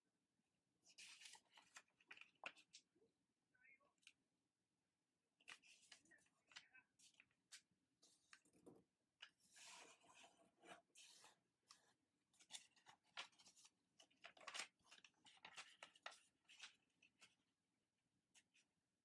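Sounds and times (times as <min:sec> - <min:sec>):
paper rustling and crackling: 0:00.9 - 0:02.8, 0:09.2 - 0:17.4.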